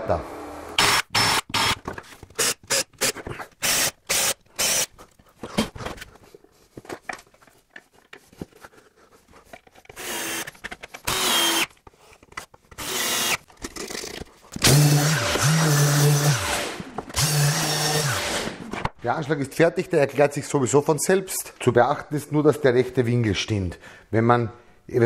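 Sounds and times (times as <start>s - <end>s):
drill driving screws into plywood: 0.8s - 4.9s, 9.9s - 11.7s, 12.8s - 18.6s.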